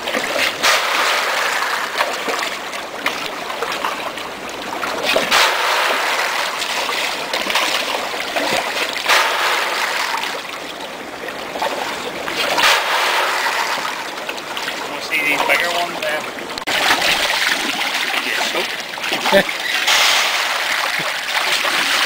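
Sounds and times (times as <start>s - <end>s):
fish splashing water: 0.0s - 22.0s.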